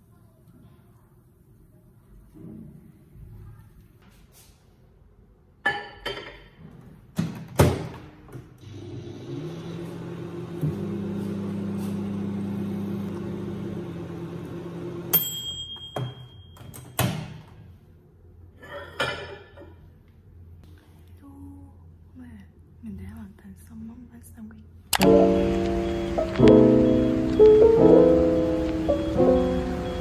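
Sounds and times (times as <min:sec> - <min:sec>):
small appliance humming: 0:08.6 - 0:15.1, 0:25.0 - 0:30.0
high beep: 0:25.0 - 0:30.0.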